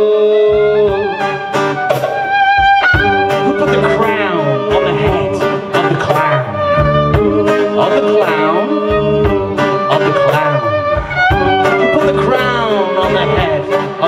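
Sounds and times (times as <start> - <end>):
folk-rock band playing: 0.0 - 14.0
fiddle: 0.7 - 14.0.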